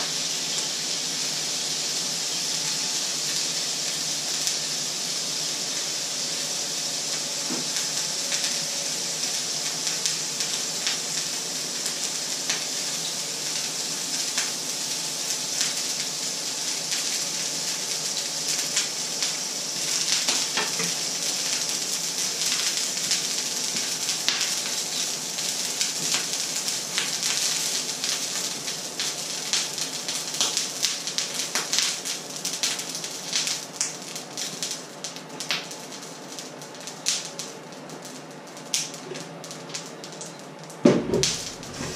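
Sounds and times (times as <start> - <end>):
food sizzling in hot oil: 0.0 - 41.9
oil crackling pops: 36.6 - 41.9.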